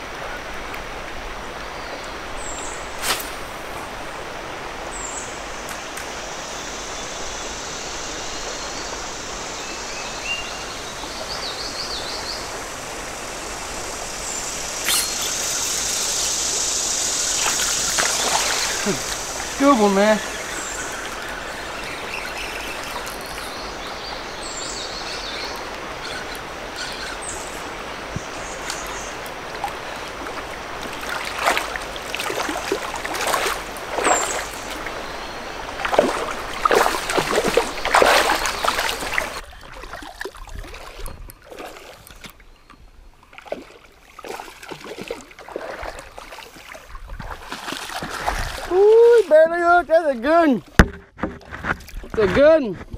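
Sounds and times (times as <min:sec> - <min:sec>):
creek water running: 0:00.0 - 0:52.9
person wading and splashing: 0:17.3 - 0:23.9, 0:28.5 - 0:42.4, 0:43.2 - 0:49.3.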